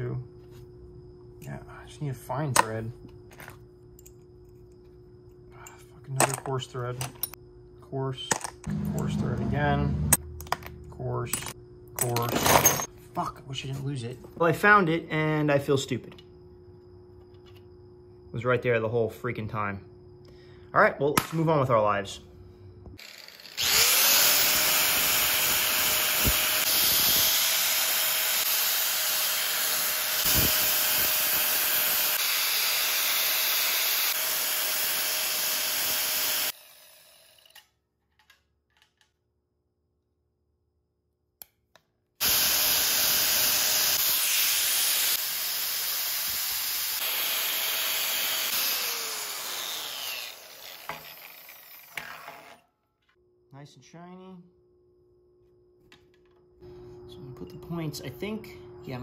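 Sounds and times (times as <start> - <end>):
angle grinder grinding metal: 23.0 - 37.6, 42.2 - 52.7.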